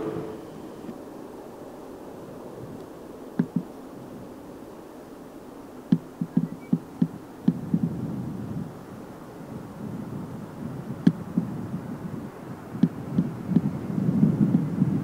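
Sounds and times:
faint steady rumble: 0:00.0 - 0:15.0.

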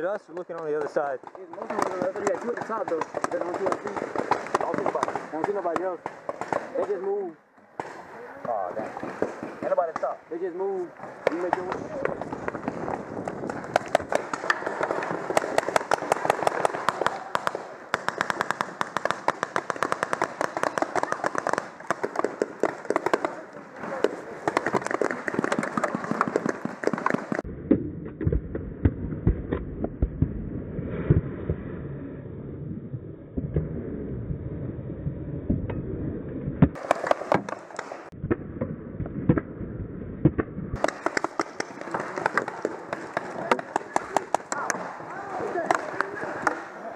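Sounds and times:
paintball markers firing: 0:00.5 - 0:07.2, 0:11.0 - 0:27.5, 0:36.7 - 0:38.2, 0:40.2 - 0:46.7.

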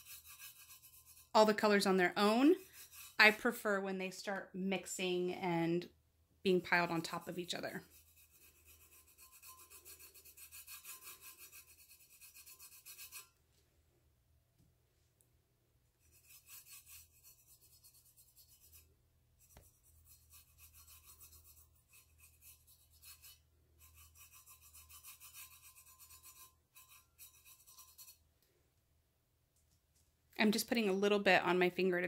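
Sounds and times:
fingertips rubbing painted metal: 0:00.0 - 0:03.4, 0:06.7 - 0:13.4, 0:16.0 - 0:28.2.

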